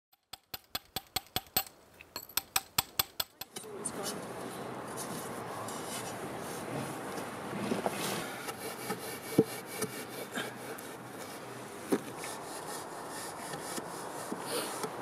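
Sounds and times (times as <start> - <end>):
hammer tapping a chisel: 0.1 - 3.6
outdoor noise: 0.1 - 15.0.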